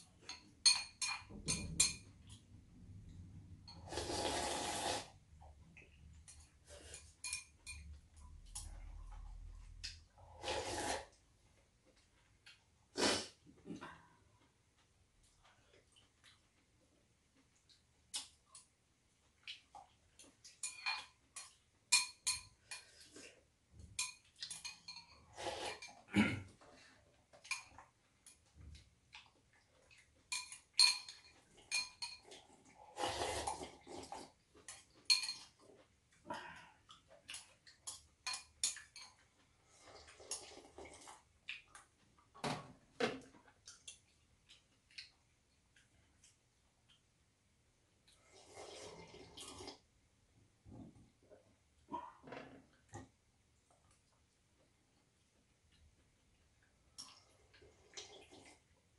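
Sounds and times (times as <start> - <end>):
eating and sipping broth: 0.0 - 42.3, 43.3 - 58.9
utensils clinking on ceramic bowls: 0.2 - 2.3, 6.3 - 8.0, 20.4 - 23.1, 23.9 - 26.1, 30.3 - 32.4, 34.7 - 35.6, 37.9 - 39.2.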